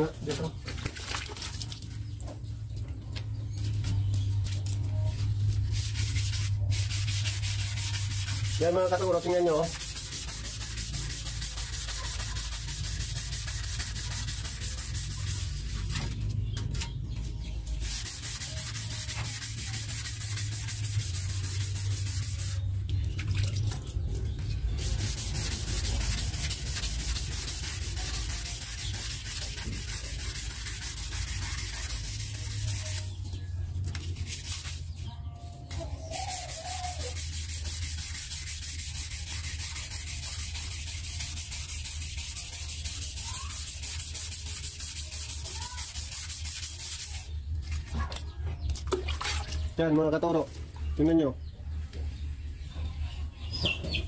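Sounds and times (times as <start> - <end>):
sandpaper rubbing wet surface: 3.6 - 16.5, 17.7 - 23.1, 24.4 - 35.1, 36.0 - 47.9.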